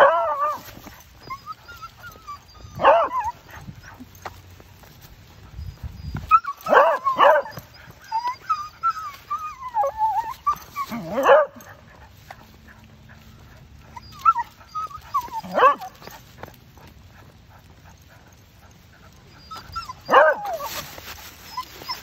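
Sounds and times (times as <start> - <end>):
dog whining: 0.0 - 4.2, 5.7 - 11.7, 13.5 - 16.2, 19.0 - 20.8, 21.4 - 22.0
dog yelping: 0.0 - 4.3, 5.7 - 12.8, 13.4 - 16.2, 17.2 - 22.0.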